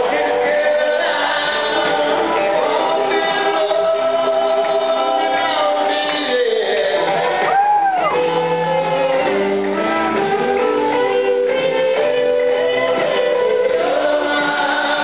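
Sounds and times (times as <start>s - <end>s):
live rock band playing: 0.0s - 15.0s
sustained lead guitar notes: 7.0s - 13.9s.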